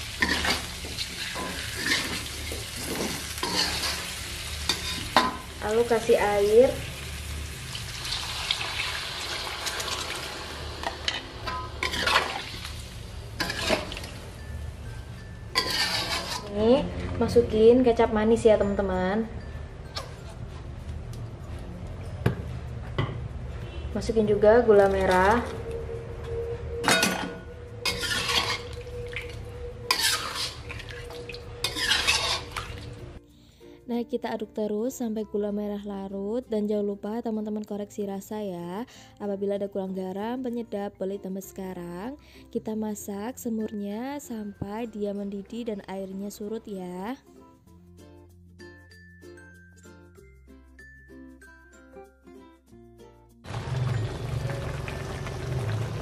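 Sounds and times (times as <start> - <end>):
metal spatula scraping wok: 0.0 - 6.1, 9.7 - 14.4, 15.5 - 16.8, 26.8 - 33.2
frying noise: 0.0 - 14.5, 27.8 - 33.1, 53.5 - 56.0
water pouring into wok: 7.6 - 10.9, 28.2 - 32.9, 53.5 - 56.0
low hum: 23.3 - 31.8.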